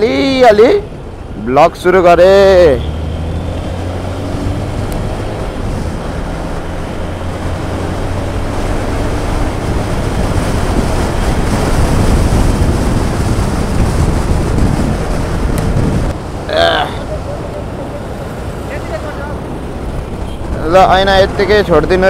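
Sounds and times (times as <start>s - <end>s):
wind on microphone: 3.7s - 16.2s.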